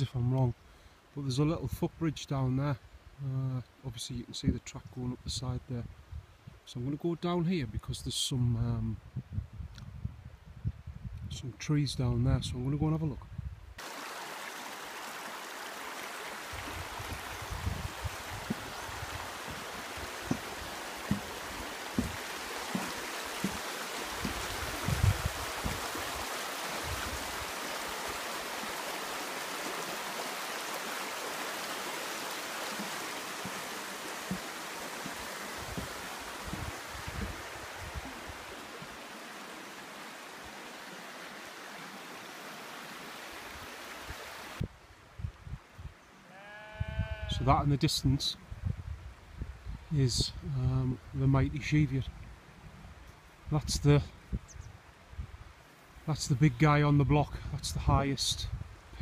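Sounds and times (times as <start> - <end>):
stream rushing: 13.8 - 44.6
low thuds: 17.1 - 25.9, 32.7 - 37.4.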